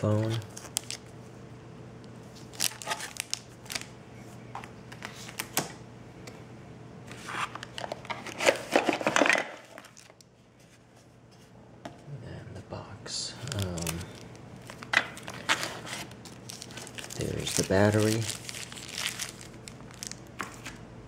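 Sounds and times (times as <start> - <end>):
paper and plastic rustling: 2.2 - 3.9, 7.1 - 11.5, 13.4 - 20.8.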